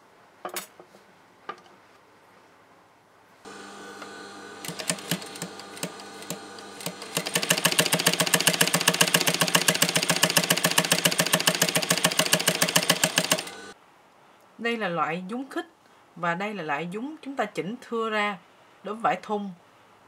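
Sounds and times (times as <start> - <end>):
sewing machine stitching: 3.5 - 13.8.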